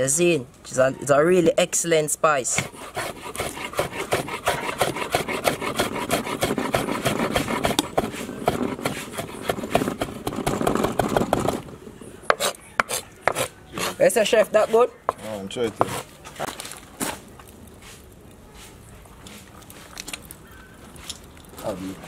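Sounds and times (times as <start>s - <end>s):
knife chopping on wooden board: 2.6s - 11.6s, 12.3s - 14.0s.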